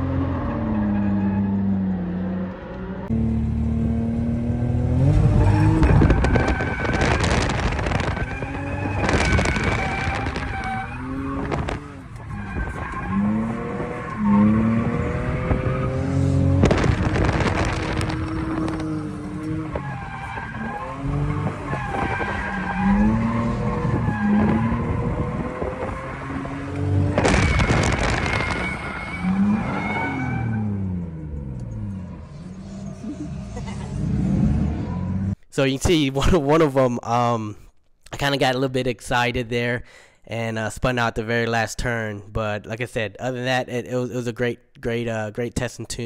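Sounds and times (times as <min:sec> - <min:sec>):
car engine revving: 0:00.0 - 0:35.4.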